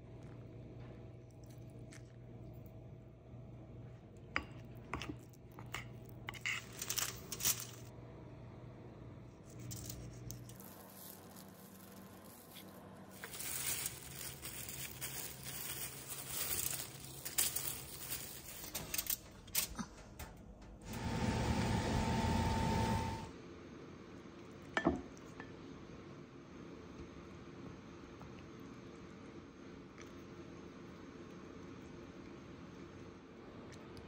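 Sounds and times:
aluminium foil rustling: 0:06.4 - 0:07.9, 0:09.5 - 0:20.4.

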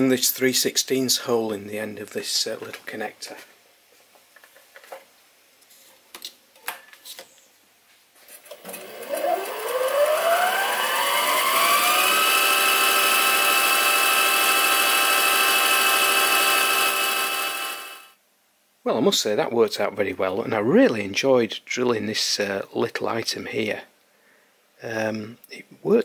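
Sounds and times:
lathe motor whine: 0:08.6 - 0:18.1.

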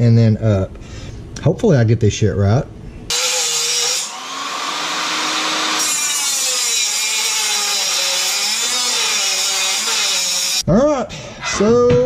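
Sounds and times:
grinder cutting metal: 0:03.1 - 0:10.6.

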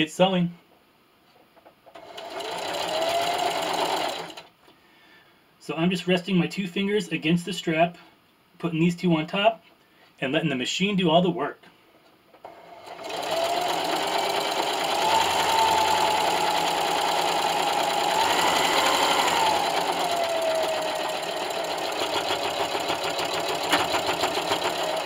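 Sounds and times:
electric sewing machine whine: 0:02.0 - 0:04.5, 0:12.4 - 0:25.0.

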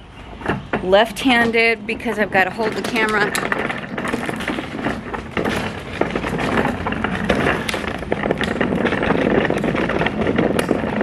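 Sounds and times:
cart rattling over concrete: 0:00.0 - 0:11.0.

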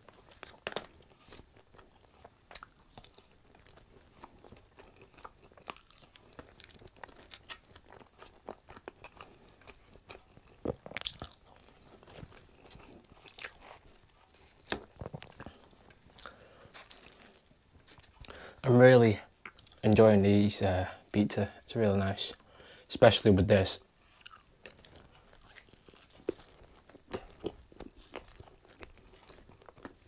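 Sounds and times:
person chewing crunchy food: 0:00.0 - 0:18.6, 0:19.4 - 0:19.8, 0:23.9 - 0:30.0.

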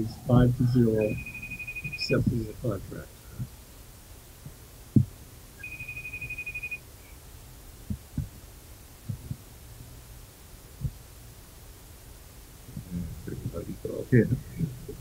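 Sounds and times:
high steady pulsing tone: 0:00.0 - 0:03.0, 0:05.0 - 0:07.2.

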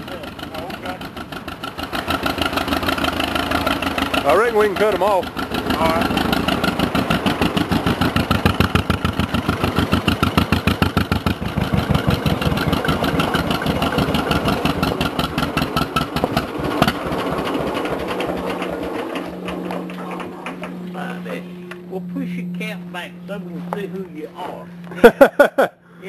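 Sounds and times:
tractor engine putt-putt: 0:00.0 - 0:21.0
steady low hum: 0:03.0 - 0:26.0.

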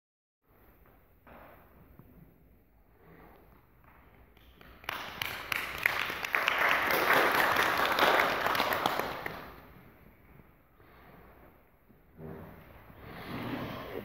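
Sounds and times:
audience applauding: 0:04.4 - 0:09.7.

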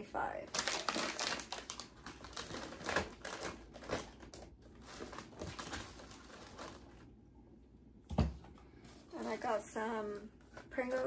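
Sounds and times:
plastic packaging crinkling: 0:00.5 - 0:07.1.

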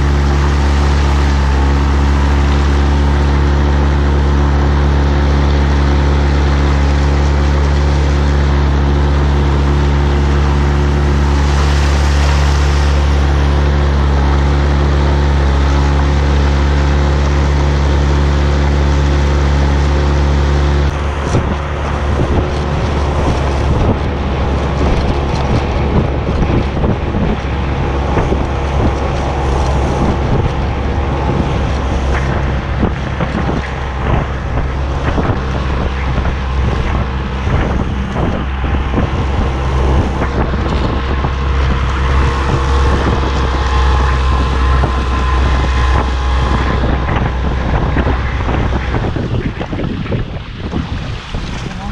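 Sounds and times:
outboard motor running: 0:00.0 - 0:51.9
wind buffeting microphone: 0:00.0 - 0:51.9.

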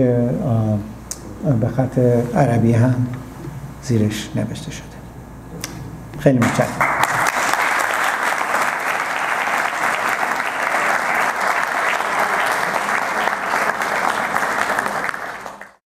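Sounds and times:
audience applauding: 0:06.8 - 0:15.8.

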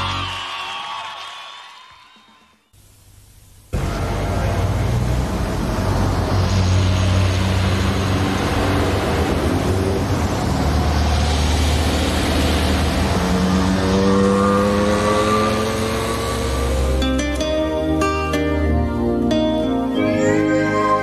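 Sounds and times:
car engine revving: 0:03.7 - 0:17.2
street traffic rumble: 0:03.7 - 0:21.0.

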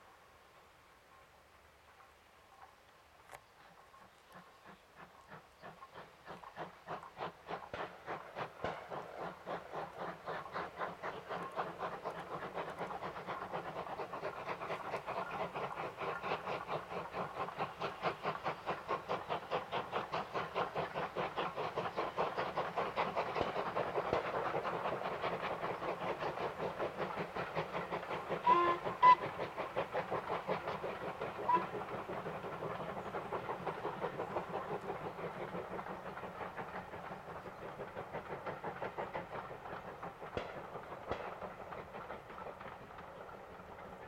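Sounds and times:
steam locomotive exhaust beating: 0:03.6 - 0:44.0
steam whistle blasts: 0:28.4 - 0:29.3.

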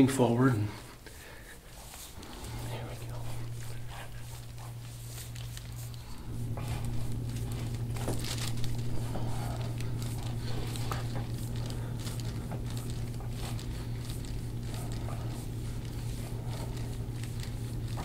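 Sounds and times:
steady low hum: 0:00.0 - 0:18.0
crinkling and rustling: 0:00.9 - 0:18.0.

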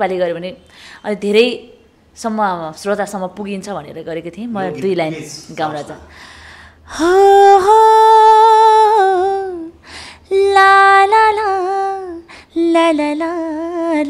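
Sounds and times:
woman singing unaccompanied: 0:06.9 - 0:14.0.

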